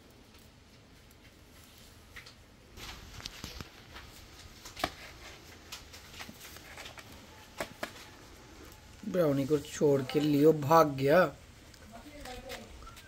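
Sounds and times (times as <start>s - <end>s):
light clicks and rustles: 0.1s - 8.8s.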